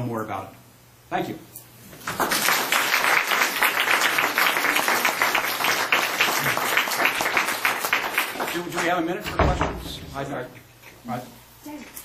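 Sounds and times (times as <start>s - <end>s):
audience applauding: 2.0s - 9.1s.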